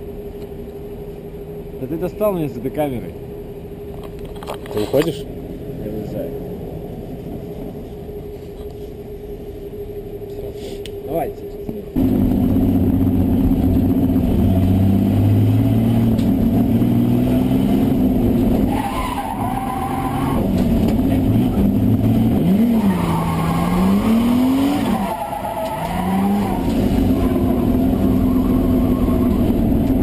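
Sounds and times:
car engine revving: 11.9s - 30.0s
tyres squealing: 18.7s - 20.6s, 22.5s - 29.5s.

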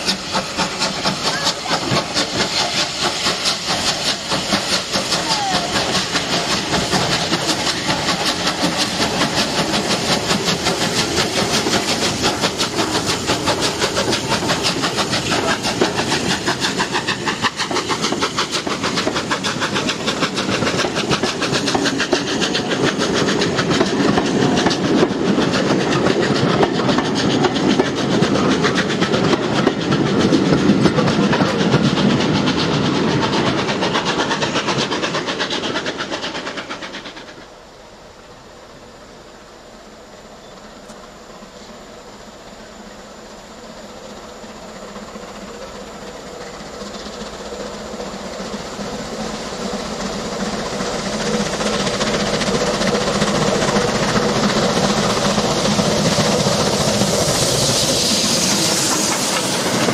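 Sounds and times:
hissing steam: 0.0s - 59.9s
steam locomotive exhaust chuffs: 0.0s - 59.9s.

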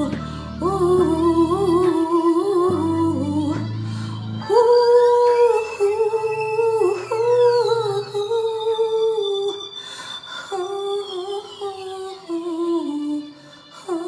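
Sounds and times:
quiet backing track: 0.0s - 9.8s.

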